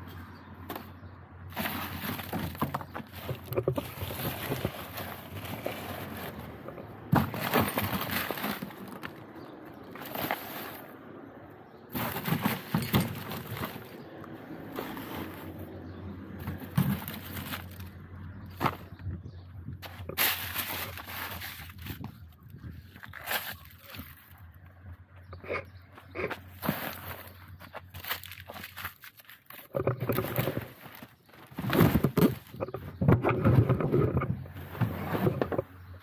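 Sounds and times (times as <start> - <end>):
litter rustling and clattering: 1.5 - 9.2, 11.9 - 14.0, 14.7 - 19.0, 19.8 - 22.2, 26.2 - 35.6.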